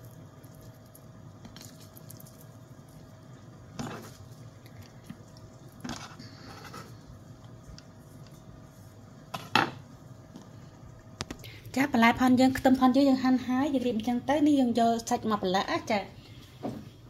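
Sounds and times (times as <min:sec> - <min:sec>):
onion crackling: 0:00.0 - 0:06.9.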